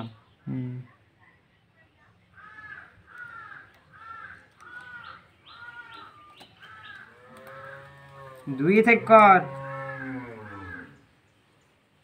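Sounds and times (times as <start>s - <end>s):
crow cawing: 2.4s - 11.0s.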